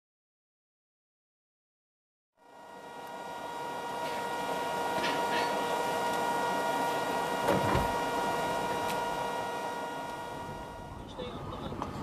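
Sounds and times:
steady mechanical hum: 2.4s - 12.0s.

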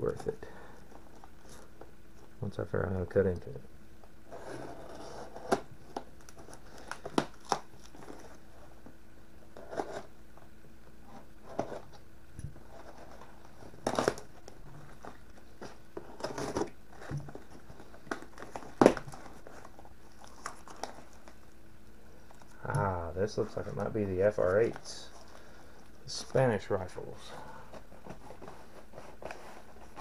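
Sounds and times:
cardboard tearing: 13.8s - 14.3s, 14.9s - 21.4s.

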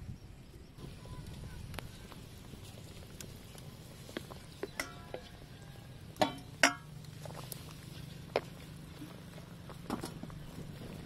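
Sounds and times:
ladle clinking on metal cookware: 6.2s - 6.9s.

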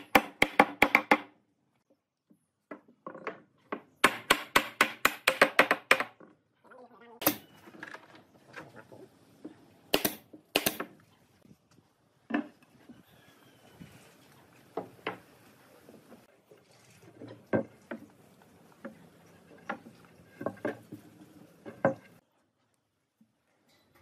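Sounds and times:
nail gun firing: 9.9s - 10.9s.

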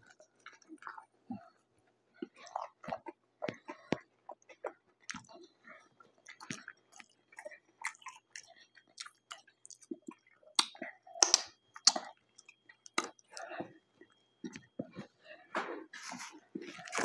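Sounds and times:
close chewing: 0.0s - 17.0s
wet lip smacks: 10.6s - 12.1s
mouth clicks: 10.6s - 12.2s.

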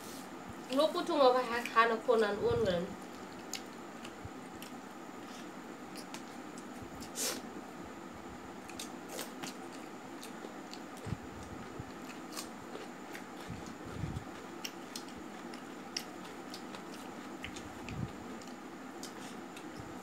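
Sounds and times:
chewing and eating smacks: 3.1s - 7.2s, 8.6s - 20.0s.

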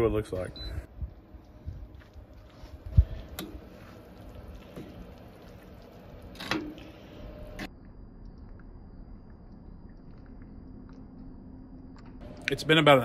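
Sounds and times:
spoon stirring thick chili: 1.2s - 7.5s.

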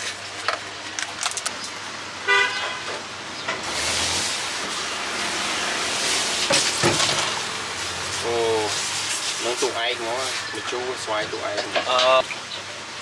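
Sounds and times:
street traffic rushing: 0.0s - 13.0s
vehicle horn toot: 2.2s - 3.0s.

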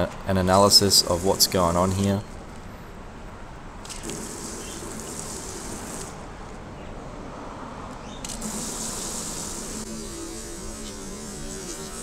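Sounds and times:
hose spray hissing on panel: 0.9s - 2.0s, 4.0s - 6.2s, 8.4s - 12.0s.

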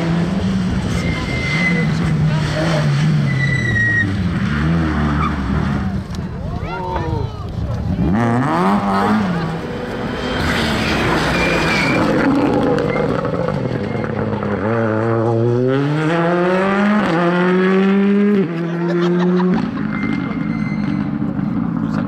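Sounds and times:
rally car engine accelerating: 0.0s - 6.3s, 7.5s - 22.0s.

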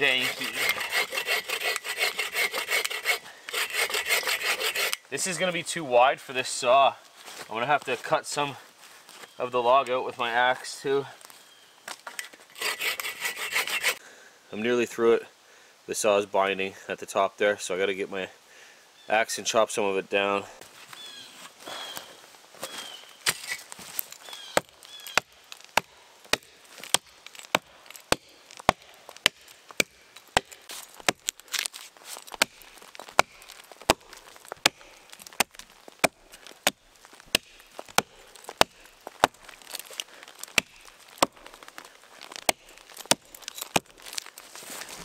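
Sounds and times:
axe chopping into log: 24.6s - 31.7s, 32.4s - 41.7s, 42.3s - 44.2s.

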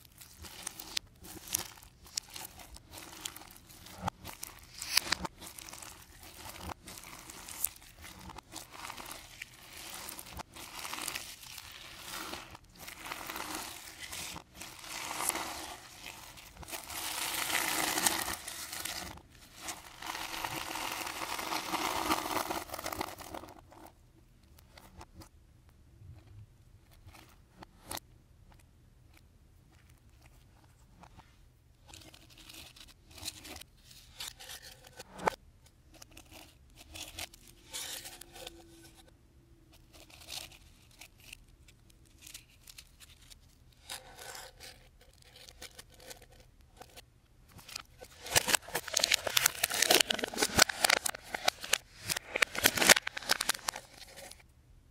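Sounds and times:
slime crackling and popping: 0.0s - 23.8s.

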